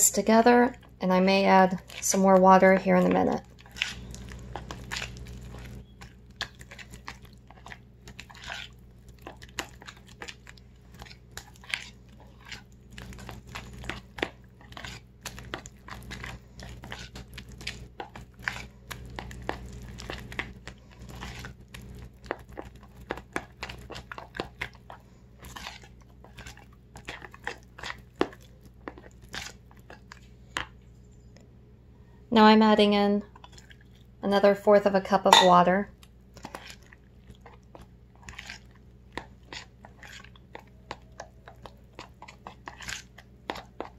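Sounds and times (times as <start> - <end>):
batter squelching: 0.0 - 31.1, 32.4 - 43.9.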